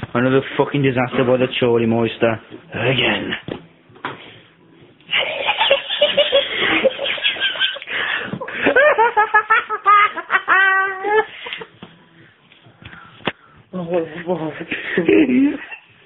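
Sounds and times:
person laughing: 0:05.1 - 0:11.7, 0:14.7 - 0:15.9.

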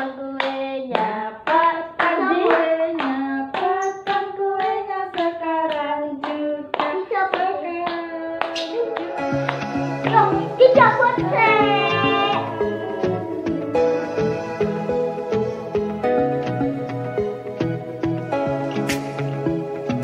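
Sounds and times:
group singing: 0:00.0 - 0:05.8, 0:11.2 - 0:15.6
hands clapping in time: 0:00.4 - 0:10.5.

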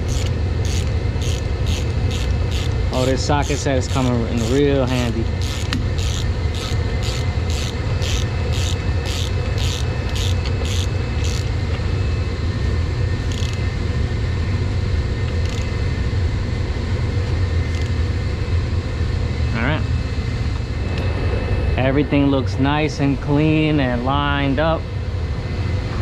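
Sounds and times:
socket ratchet clicking: 0:00.0 - 0:02.8, 0:05.4 - 0:11.5, 0:13.3 - 0:13.6, 0:15.3 - 0:15.7
steady low rumble: 0:00.0 - 0:26.0.

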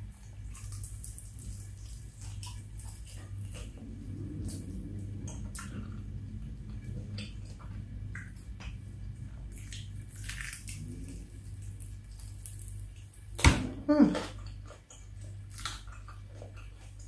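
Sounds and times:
crunching fried chicken: 0:00.0 - 0:05.9, 0:08.1 - 0:13.4, 0:14.0 - 0:17.0
steady low hum: 0:00.0 - 0:17.0
moist chewing: 0:00.1 - 0:13.3.

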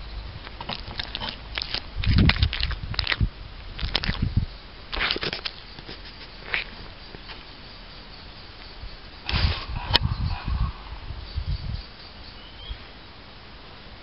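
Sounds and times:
fox crunchy chewing: 0:00.4 - 0:07.2.

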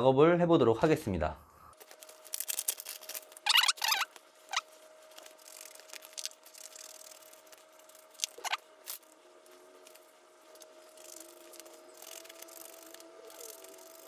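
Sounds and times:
steady high hum: 0:00.0 - 0:14.0
short squeaky chirps: 0:03.4 - 0:04.6.

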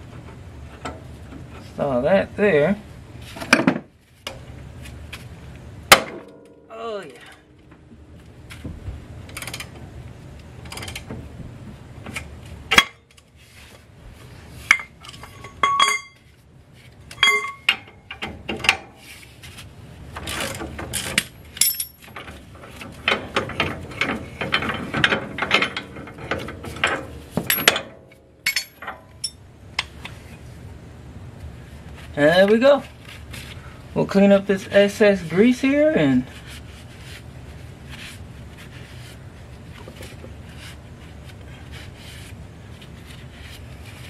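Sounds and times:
metal tools clinking: 0:14.7 - 0:16.3, 0:17.1 - 0:17.9, 0:20.9 - 0:22.3, 0:24.0 - 0:29.4.

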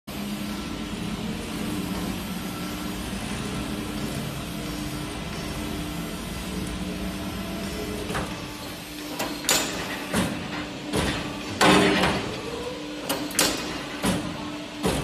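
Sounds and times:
machine hum: 0:00.1 - 0:15.0
punching machine clunks: 0:09.1 - 0:12.4, 0:13.0 - 0:15.0.

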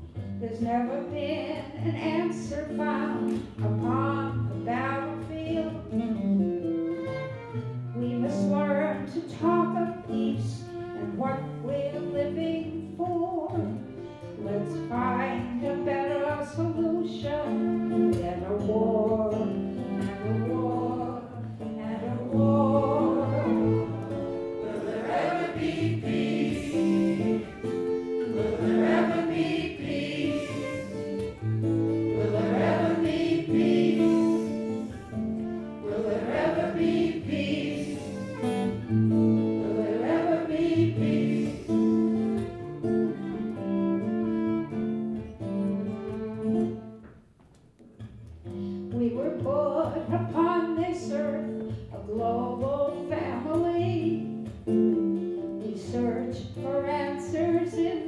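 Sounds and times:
violin: 0:00.0 - 0:47.3, 0:48.0 - 0:58.0
strummed acoustic guitar: 0:00.0 - 0:58.0
voices singing together: 0:21.9 - 0:27.6, 0:28.3 - 0:31.2, 0:32.1 - 0:34.9, 0:35.8 - 0:38.4, 0:39.6 - 0:42.3.

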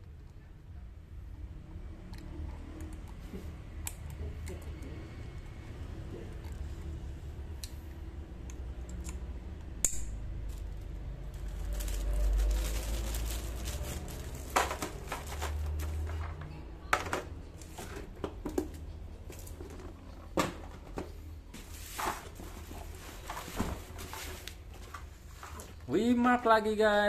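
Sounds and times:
plastic wrapping rustling: 0:10.4 - 0:16.3.

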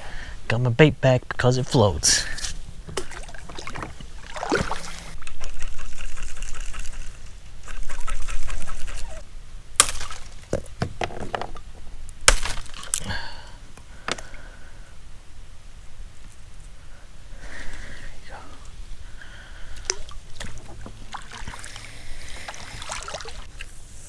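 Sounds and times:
water sloshing and trickling: 0:02.8 - 0:05.2, 0:19.7 - 0:23.5.

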